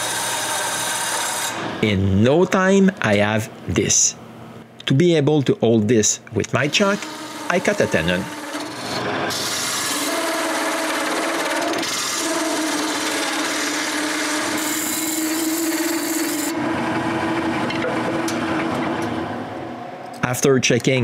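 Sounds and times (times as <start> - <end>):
lathe tool scraping wood: 0.0 - 1.7, 6.6 - 19.0
lathe motor hum: 6.6 - 19.7.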